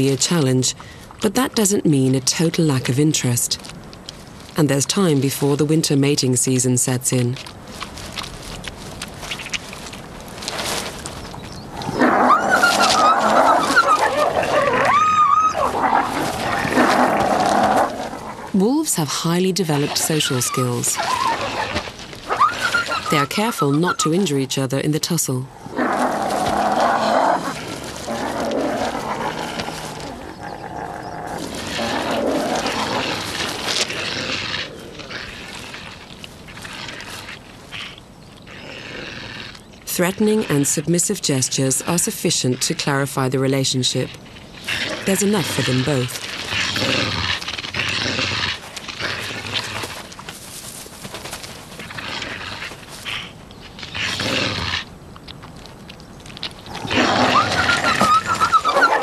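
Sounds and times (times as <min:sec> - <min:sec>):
wolves snarling: 0:11.6 - 0:18.6, 0:19.2 - 0:24.3, 0:25.5 - 0:42.8, 0:44.5 - 0:50.8, 0:51.4 - 0:54.9, 0:56.6 - 0:59.0
wolf whining: 0:11.7 - 0:18.6, 0:19.8 - 0:24.2, 0:56.7 - 0:59.0.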